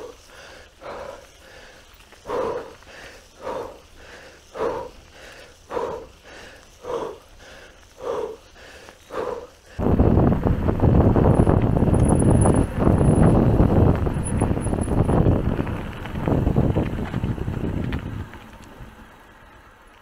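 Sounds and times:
person breathing hard: 0.0s - 9.8s
wind noise on microphone: 9.7s - 19.0s.

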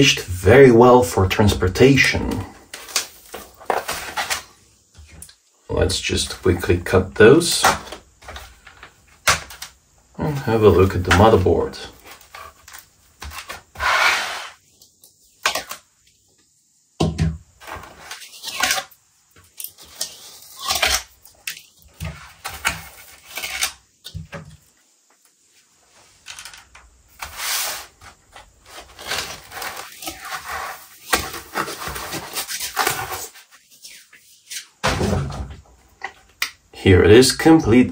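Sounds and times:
foam packaging rustling: 2.7s - 4.6s, 27.2s - 33.9s.

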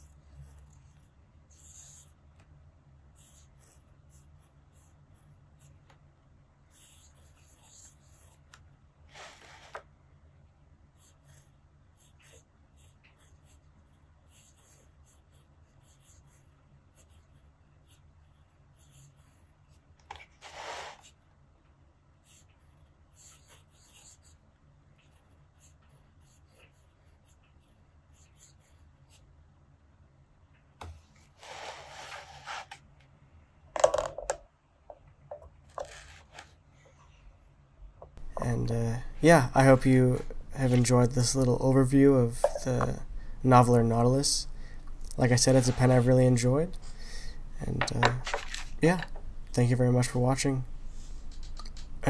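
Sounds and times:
pen nib scratching on paper: 0.0s - 2.5s, 3.1s - 6.0s, 6.6s - 9.8s, 10.9s - 21.2s, 22.2s - 29.3s.

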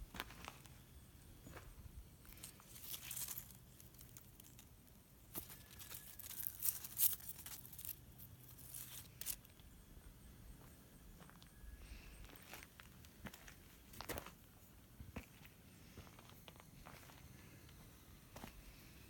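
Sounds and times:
plant leaves rustling: 2.3s - 9.5s.

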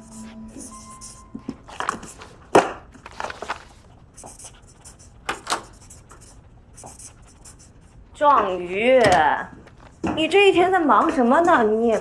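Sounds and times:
pen scratching on paper: 0.0s - 2.2s, 4.1s - 8.6s.

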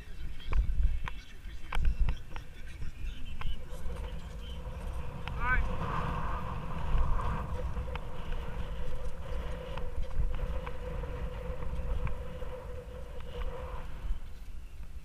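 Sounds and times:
bike tyres humming: 0.0s - 15.0s
wind rumble on microphone: 0.0s - 15.0s.

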